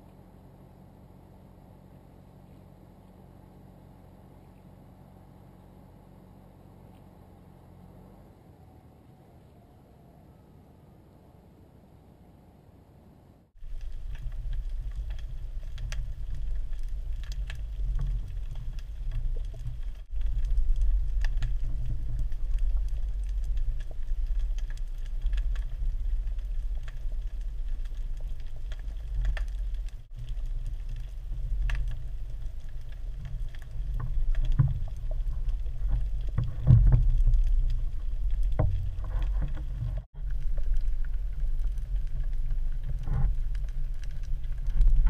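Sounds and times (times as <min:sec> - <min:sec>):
underwater water rumble: 0:13.6 - 0:45.0.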